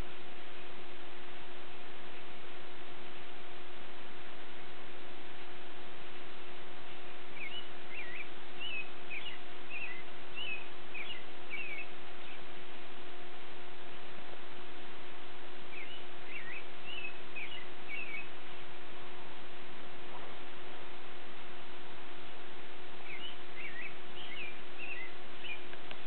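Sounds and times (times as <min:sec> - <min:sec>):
low hum and hiss: 0:00.0 - 0:26.0
songbird warbling: 0:07.3 - 0:12.5, 0:15.7 - 0:18.5, 0:23.0 - 0:26.0.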